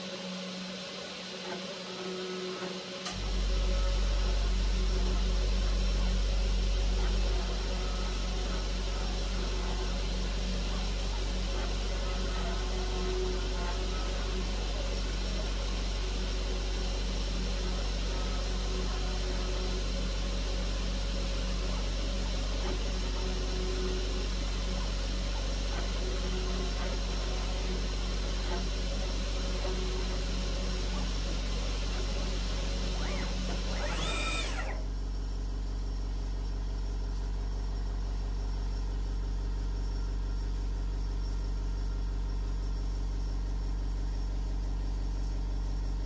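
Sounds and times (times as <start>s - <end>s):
low machine hum: 0.0s - 46.0s
milling spindle engraving metal: 22.2s - 34.8s.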